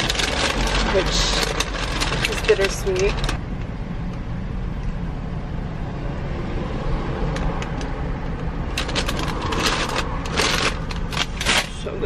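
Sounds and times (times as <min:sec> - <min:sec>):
paper bag crinkling: 0:00.0 - 0:03.4, 0:08.7 - 0:11.8
car cabin rumble: 0:00.0 - 0:05.7.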